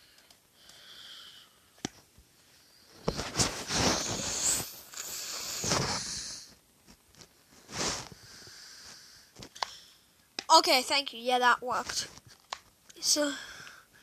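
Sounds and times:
breathy hissing: 2.5s - 6.5s, 7.7s - 10.1s.

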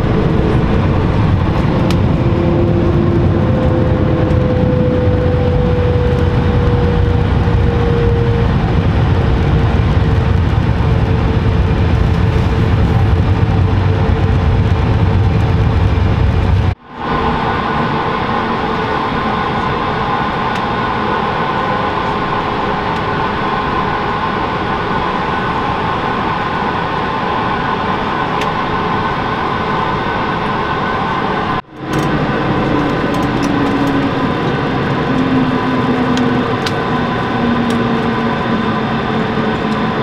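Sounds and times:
low hum falling in pitch: 0.0s - 25.3s
jet engine cabin noise: 0.0s - 40.0s.

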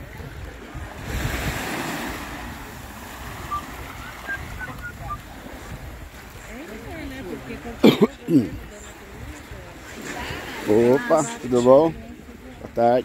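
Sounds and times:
wind rumble on microphone: 0.0s - 7.8s
waves washing on beach: 0.0s - 13.0s.

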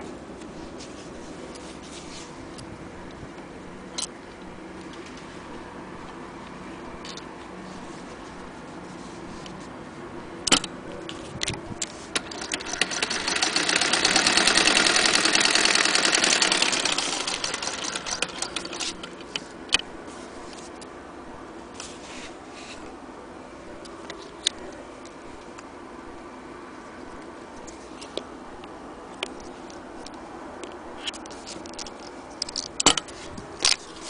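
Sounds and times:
sewing machine stitching: 12.1s - 19.3s
sewing machine clicks: 12.2s - 19.3s.

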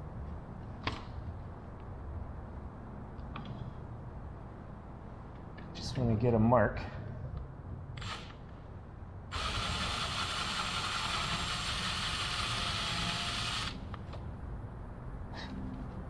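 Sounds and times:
cordless drill running: 9.3s - 13.8s.

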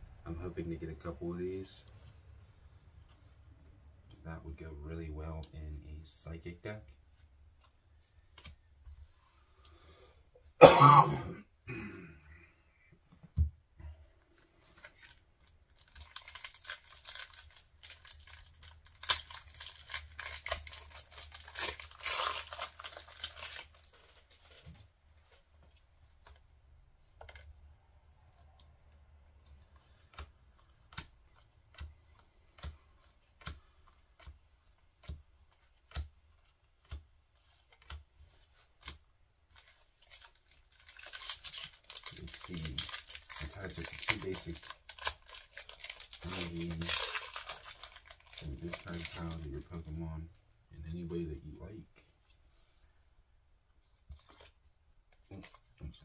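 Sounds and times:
soft clicks of cards handled: 1.8s - 4.2s, 6.7s - 9.8s, 23.9s - 49.8s, 53.7s - 56.0s
foil wrapper tearing and crinkling: 14.8s - 24.7s, 39.5s - 49.8s.

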